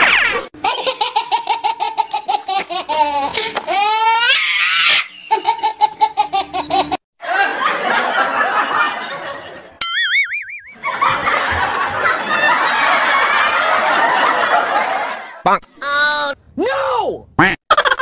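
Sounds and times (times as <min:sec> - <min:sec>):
high-pitched laughter: 0:00.6 - 0:07.7, 0:17.7 - 0:18.0
wobbling boing sound effect: 0:09.8 - 0:10.9.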